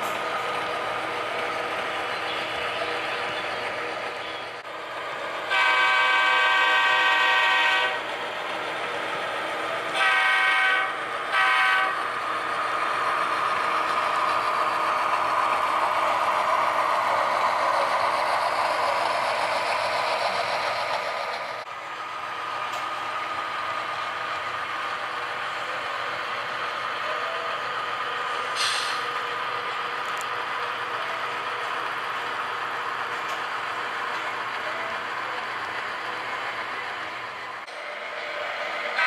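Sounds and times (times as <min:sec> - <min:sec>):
locomotive running noise: 0:00.0 - 0:39.0
diesel locomotive horn: 0:05.4 - 0:08.1, 0:09.9 - 0:12.1.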